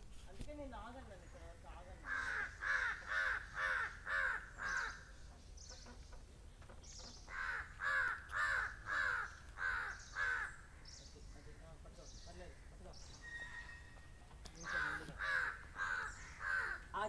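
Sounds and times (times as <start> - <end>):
crow cawing: 2.0 - 5.0, 7.3 - 10.8, 14.6 - 17.0.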